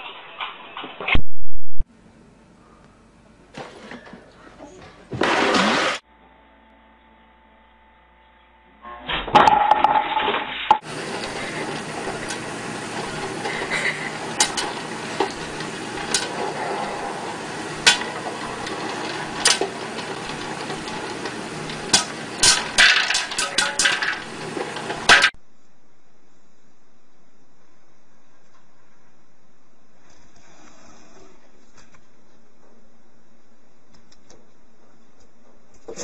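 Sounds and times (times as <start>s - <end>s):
popcorn popping: 9.3s - 25.4s
popcorn popper sizzle: 9.4s - 25.4s.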